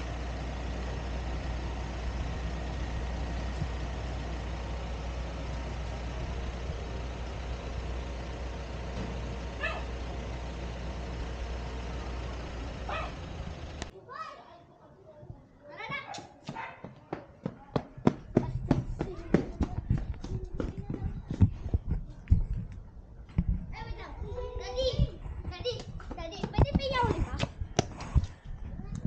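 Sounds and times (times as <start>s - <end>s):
dog barking: 9.6s - 10.0s, 12.8s - 13.2s, 16.0s - 17.0s
wind rumble on microphone: 18.6s - 29.0s.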